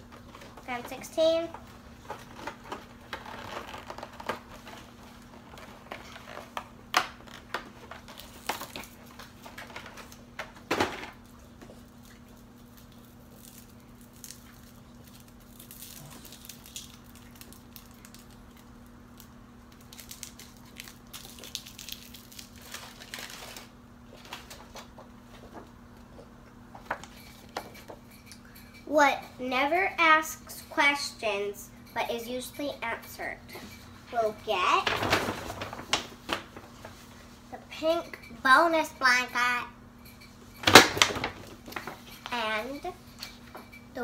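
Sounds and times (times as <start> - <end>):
cardboard and paper crinkling: 0.2 - 10.2, 19.9 - 24.9, 34.2 - 37.1.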